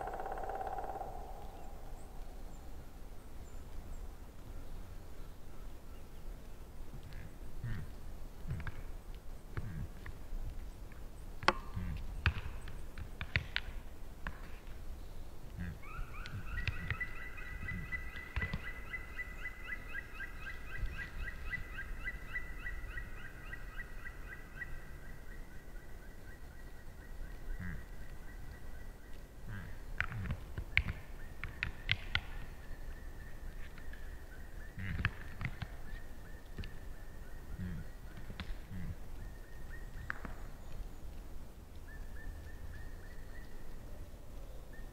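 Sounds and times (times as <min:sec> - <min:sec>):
bird trilling: 0:00.0 - 0:02.5.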